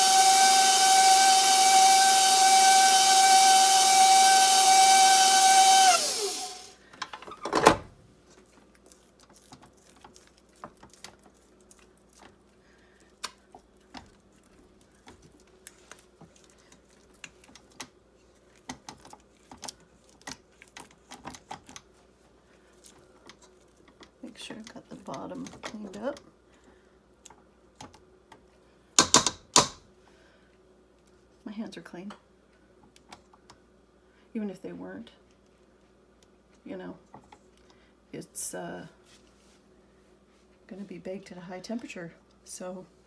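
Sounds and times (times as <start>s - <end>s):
stand mixer motor whine: 0.0s - 6.7s.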